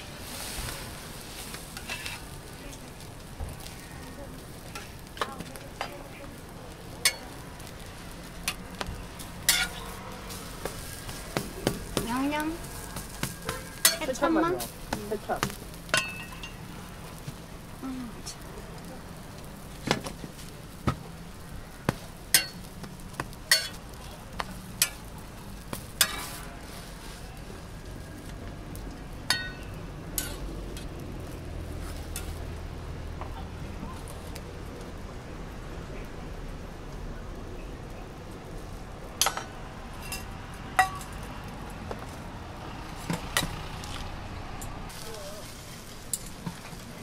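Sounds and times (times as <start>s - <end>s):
food sizzling on hot plate: 0.0s - 34.4s, 44.8s - 47.0s
street traffic hum: 0.0s - 47.0s
metal utensils clinking on griddle: 0.3s - 3.0s, 4.5s - 6.1s, 7.0s - 17.4s, 21.9s - 27.3s, 29.2s - 30.9s, 31.8s - 32.4s, 39.2s - 41.3s, 44.6s - 47.0s.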